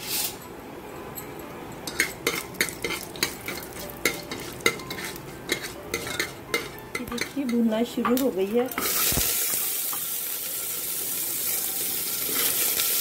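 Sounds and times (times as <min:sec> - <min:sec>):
spoon scraping metal pot: 0:01.9 - 0:09.2
seeds sizzling in hot oil: 0:02.3 - 0:13.0.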